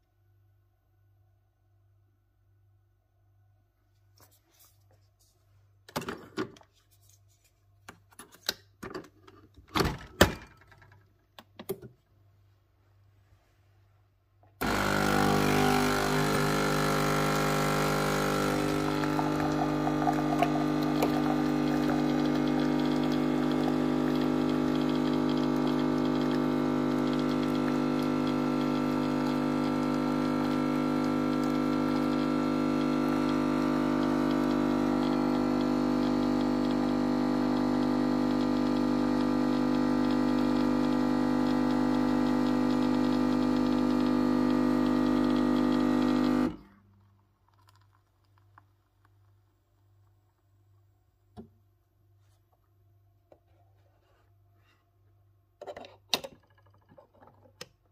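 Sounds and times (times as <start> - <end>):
coffee machine brewing: 14.6 - 46.8.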